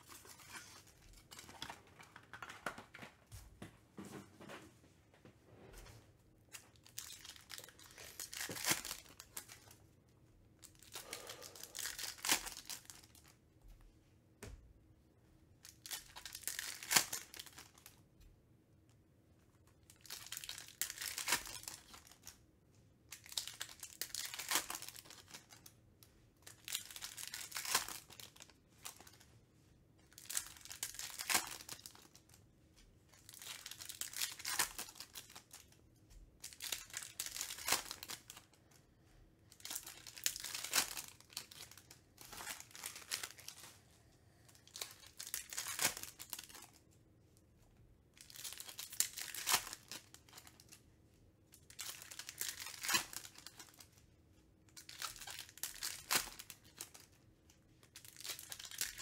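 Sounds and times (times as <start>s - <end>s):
card pack wrappers crinkling and tearing: 0.0s - 3.1s, 6.5s - 9.8s, 10.6s - 13.3s, 15.6s - 18.0s, 19.7s - 22.4s, 23.1s - 25.8s, 26.4s - 29.2s, 30.0s - 32.4s, 33.1s - 35.8s, 36.4s - 38.8s, 39.5s - 43.8s, 44.4s - 46.8s, 48.1s - 50.8s, 51.5s - 54.0s, 54.7s - 59.0s.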